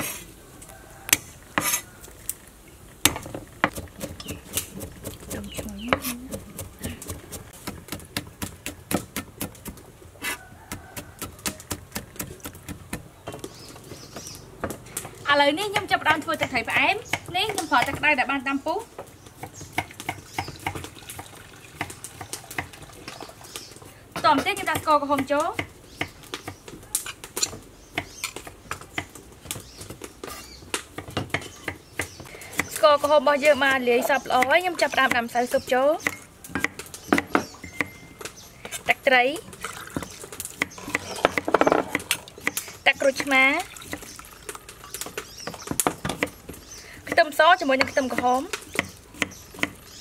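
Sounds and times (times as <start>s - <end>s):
cleaver chopping on a block: 3.1s - 10.4s, 40.0s - 42.6s, 47.8s - 50.0s.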